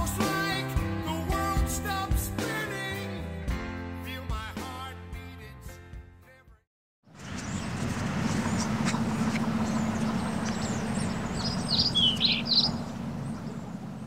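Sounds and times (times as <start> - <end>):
outdoor background rumble: 7.1 - 14.0
short bird chirps: 9.6 - 13.7.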